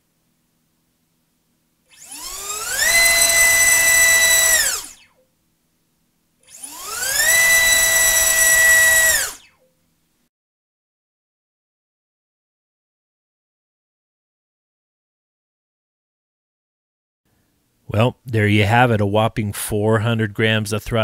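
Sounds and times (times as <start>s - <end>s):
motor and propeller whine: 1.9s - 5.0s, 6.5s - 9.5s.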